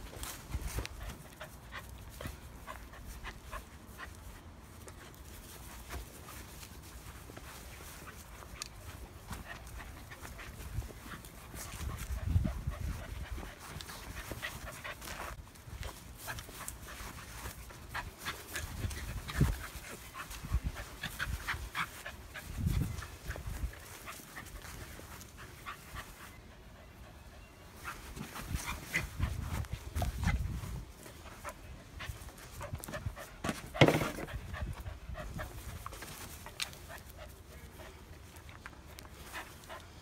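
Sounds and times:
dog panting: 7.6s - 40.0s.

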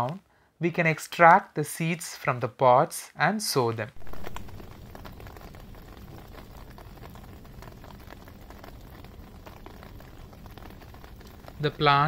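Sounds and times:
steady rain on terrace: 4.0s - 12.0s.

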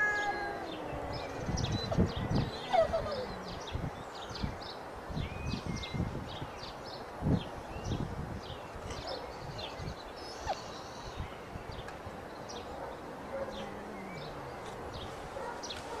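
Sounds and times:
cat yowling: 0.0s - 3.6s
outdoor background hiss: 0.0s - 16.0s
small birds chirping: 0.0s - 16.0s.

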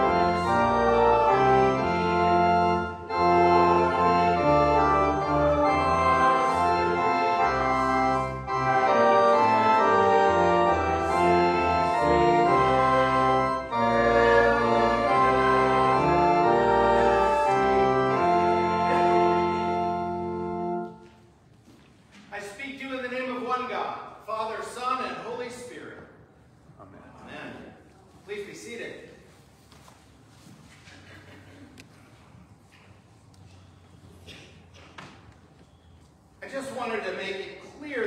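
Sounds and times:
church organ chords: 0.0s - 21.3s.

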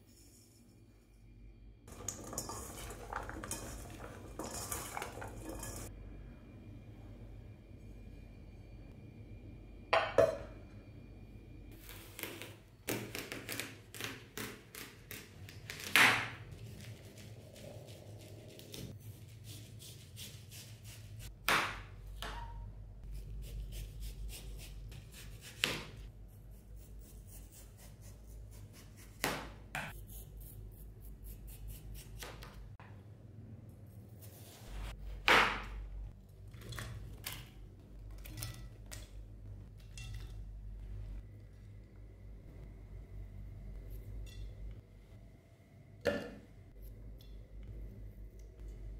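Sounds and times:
faint low hum: 0.0s - 12.9s, 32.7s - 48.9s.

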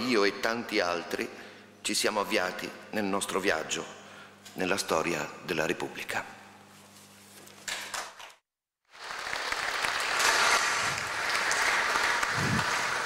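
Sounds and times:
audience applauding: 8.9s - 13.0s.

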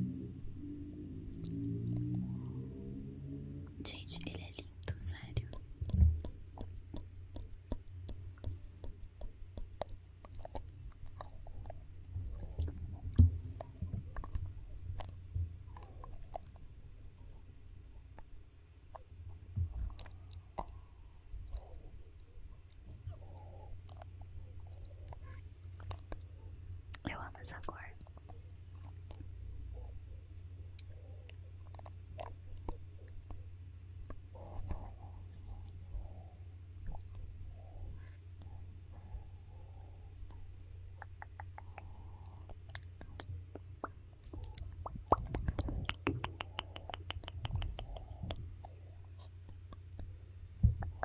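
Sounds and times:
small mouth clicks: 1.3s - 16.6s, 18.9s - 22.0s, 22.7s - 26.3s, 30.7s - 38.6s, 40.1s - 50.1s, 50.8s - 51.0s
wet lip smacks: 19.7s - 20.9s, 30.7s - 33.4s, 40.2s - 50.1s.

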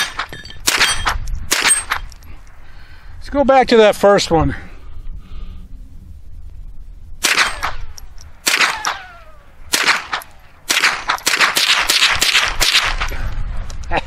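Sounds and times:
rifle shots: 0.0s - 2.0s, 7.2s - 13.2s
ricochet whine: 7.2s - 13.1s.

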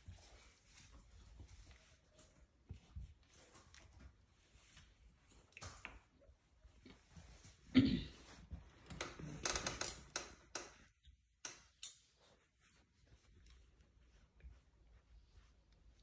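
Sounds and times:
rustling of fur and plush: 0.0s - 9.4s, 12.0s - 16.0s.

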